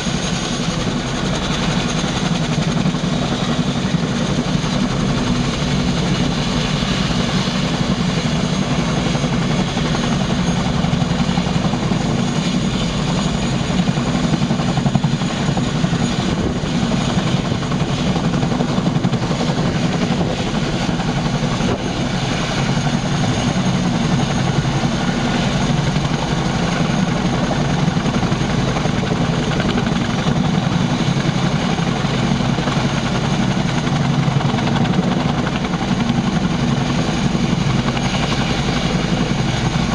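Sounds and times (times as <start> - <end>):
helicopter rotors turning: 0.0 - 39.9
high turbine whine: 0.0 - 39.9.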